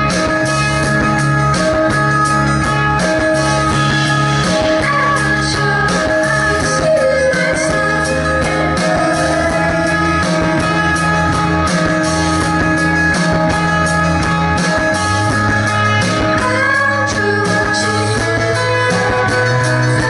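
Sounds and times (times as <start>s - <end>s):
electric guitar: 0.0s - 20.0s
live rock band playing: 0.0s - 20.0s
low bass line: 0.0s - 20.0s
drum beat: 7.4s - 16.6s.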